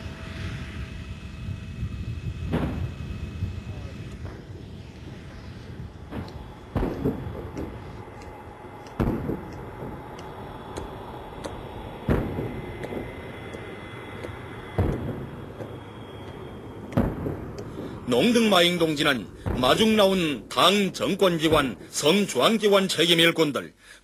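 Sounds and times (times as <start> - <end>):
jet airliner whine: 0.0 - 24.0
saluting guns booming: 6.0 - 20.4.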